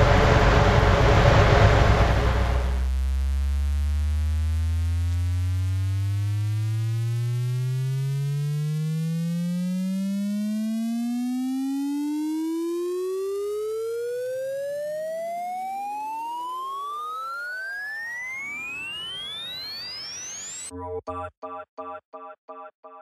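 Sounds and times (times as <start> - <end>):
electronic tone gliding upward: 5.0 - 23.0.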